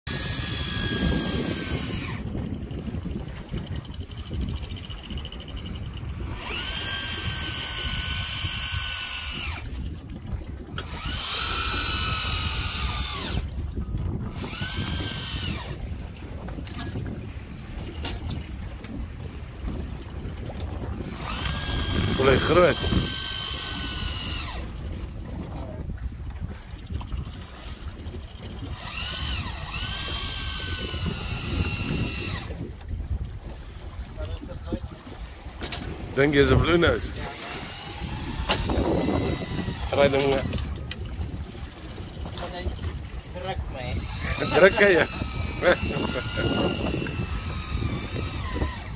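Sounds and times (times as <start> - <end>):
low rumble of wind and sea: 0.0 - 48.9
fishing reel motor winding: 0.1 - 2.4, 3.8 - 10.0, 10.8 - 13.6, 14.2 - 16.1, 21.0 - 25.0, 28.1 - 32.9, 36.8 - 41.1, 43.9 - 48.9.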